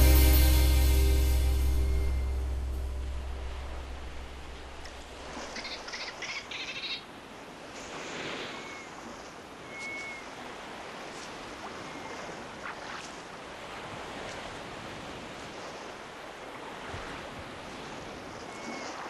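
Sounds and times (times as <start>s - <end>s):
rushing surf or wind: 7.1s - 19.0s
short whistled calls: 8.5s - 8.9s, 9.6s - 10.3s, 18.5s - 19.0s.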